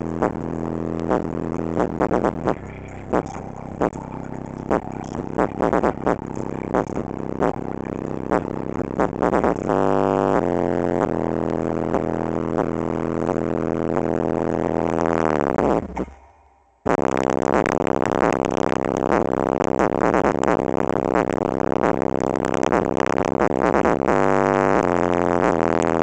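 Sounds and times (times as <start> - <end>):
sustained bass note dropping in pitch: 0.0 - 17.4
loud distorted subwoofer bass: 0.0 - 26.0.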